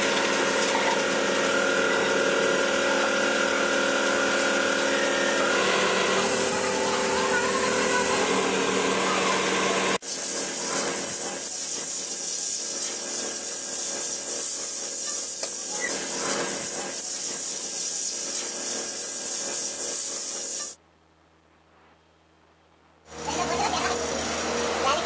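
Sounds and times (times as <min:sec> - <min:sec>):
lathe motor hum: 0:01.1 - 0:10.0.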